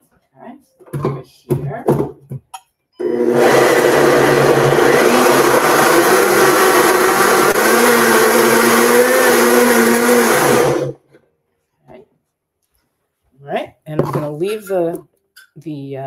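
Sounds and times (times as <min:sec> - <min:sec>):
countertop blender running: 0:03.0 - 0:11.0.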